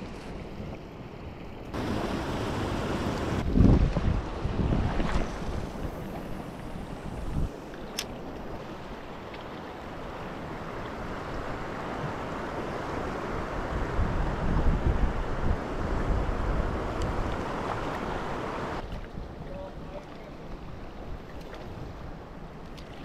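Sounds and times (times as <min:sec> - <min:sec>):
wind buffeting microphone: 0:01.7 - 0:07.6, 0:10.5 - 0:20.0
surf washing over rocks: 0:01.7 - 0:18.9.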